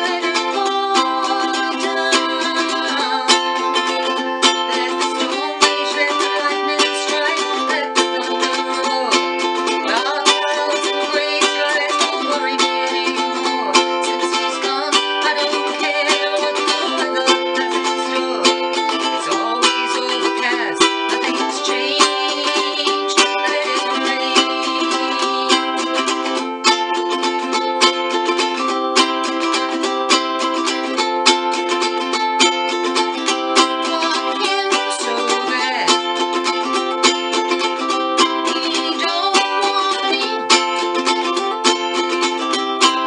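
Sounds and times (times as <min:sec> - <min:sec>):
ukulele strumming: 0:00.0 - 0:43.0.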